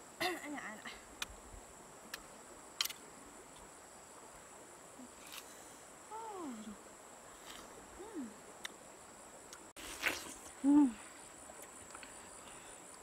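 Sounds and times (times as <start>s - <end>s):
woman humming mmm: 6.1s - 6.8s, 8.0s - 8.4s, 10.0s - 11.1s
wet bite or slurp: 9.8s - 10.5s.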